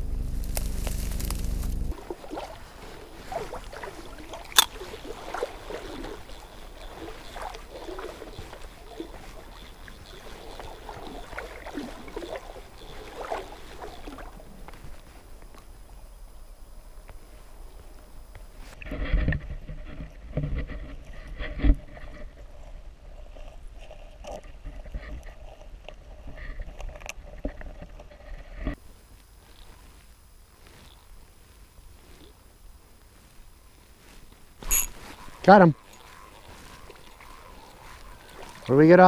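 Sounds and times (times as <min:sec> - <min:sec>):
low rumble: 0:00.0 - 0:02.1
muffled underwater stream gurgling: 0:01.9 - 0:15.1, 0:35.0 - 0:39.0.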